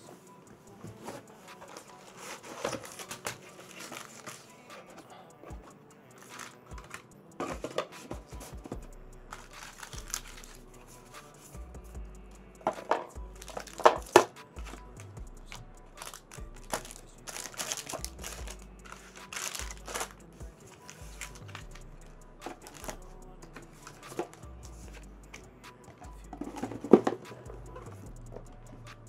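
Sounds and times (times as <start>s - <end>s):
plastic packaging crinkling: 1.6s - 4.5s, 12.9s - 14.2s, 16.0s - 20.1s.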